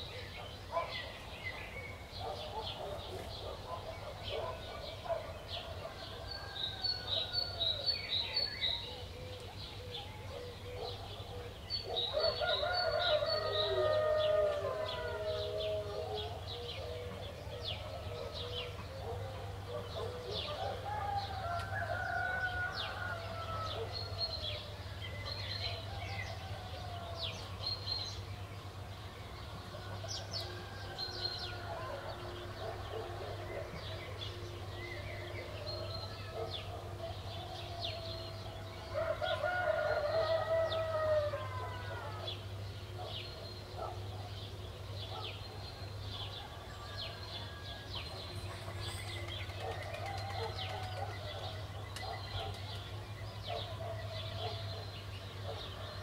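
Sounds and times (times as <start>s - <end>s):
small birds chirping: 0.0s - 56.0s
roosters crowing: 12.0s - 24.8s, 29.6s - 42.6s, 46.3s - 51.9s.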